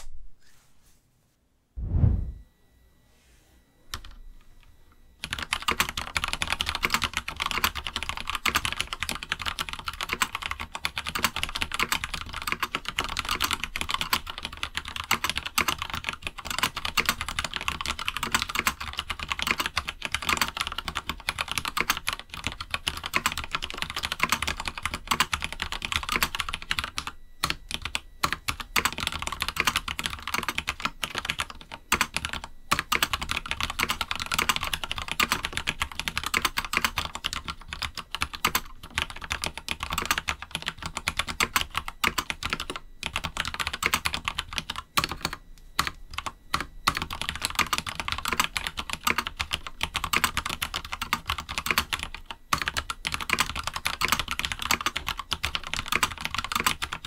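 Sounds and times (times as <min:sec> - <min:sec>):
faint high beep: 0:01.8 - 0:05.2
mechanical keyboard typing: 0:05.2 - 0:57.0.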